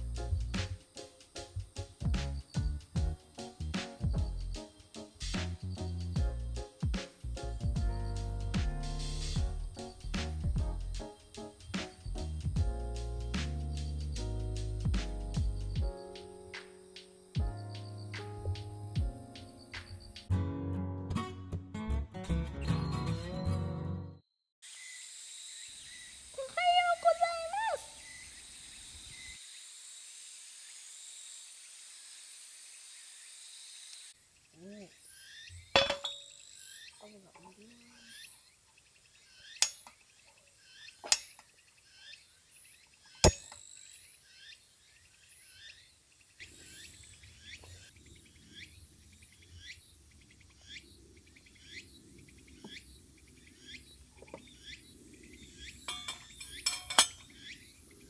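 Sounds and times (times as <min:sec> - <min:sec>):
insects chirping: 0:00.0 - 0:10.2, 0:15.5 - 0:20.3, 0:24.6 - 0:58.0
insects droning: 0:00.0 - 0:10.3, 0:15.5 - 0:20.3, 0:24.6 - 0:58.0
tableware clinking: 0:35.8 - 0:36.3, 0:43.2 - 0:43.6, 0:55.9 - 0:57.3.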